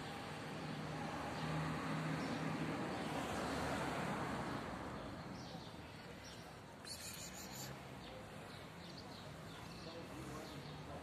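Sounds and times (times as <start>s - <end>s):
faint bird chirps: 6.8s - 7.8s.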